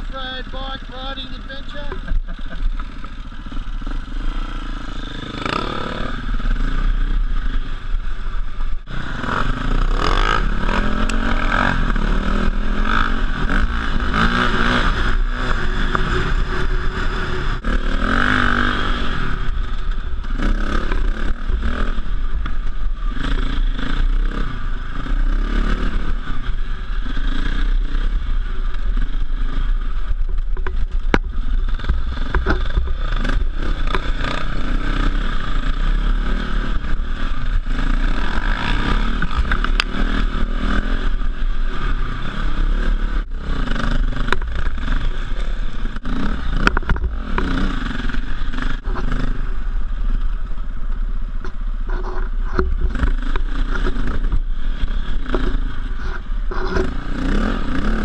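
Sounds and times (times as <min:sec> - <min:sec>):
dirt bike engine revving: 0:00.0 - 0:50.4, 0:51.3 - 0:58.0.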